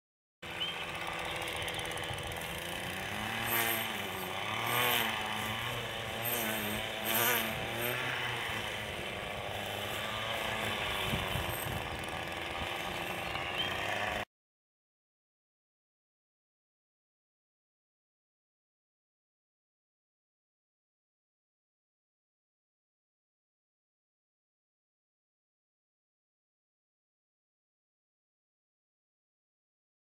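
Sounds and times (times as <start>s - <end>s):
string trimmer engine revving: 0.4s - 14.3s.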